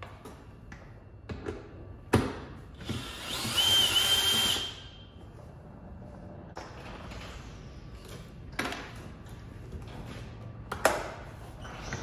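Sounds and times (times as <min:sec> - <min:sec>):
cordless drill whining: 0:02.8 - 0:04.8.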